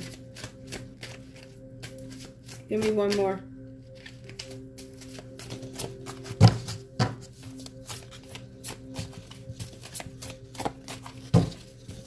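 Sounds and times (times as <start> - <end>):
cards being shuffled: 0.0 - 3.2, 4.0 - 12.0
faint background music: 0.0 - 12.0
card thumps: 5.5 - 7.3.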